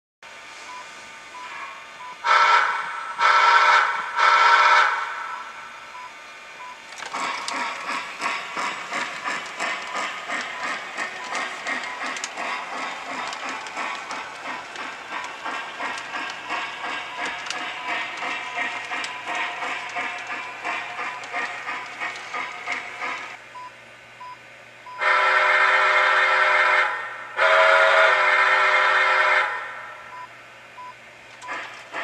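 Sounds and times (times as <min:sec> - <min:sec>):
rhythmic steam chuffing: 0:00.3 - 0:23.4, 0:25.0 - 0:30.2, 0:31.2 - 0:32.0
model train whistle blasts: 0:01.4 - 0:05.4, 0:25.0 - 0:30.0.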